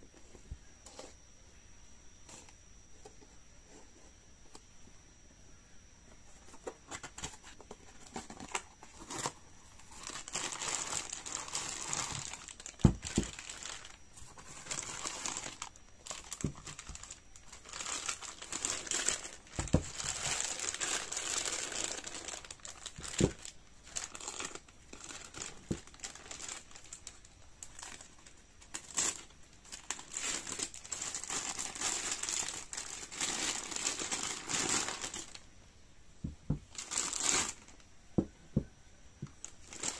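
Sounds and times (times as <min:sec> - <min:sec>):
plastic bag crinkling: 0:06.6 - 0:35.5, 0:36.5 - 0:37.8, 0:39.4 - 0:39.9.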